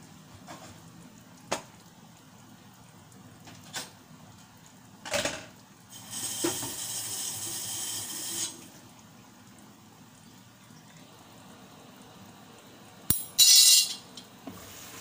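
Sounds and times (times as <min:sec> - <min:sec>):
lidded pan cooking: 0:00.0 - 0:15.0
pots and utensils knocking: 0:13.1 - 0:14.0.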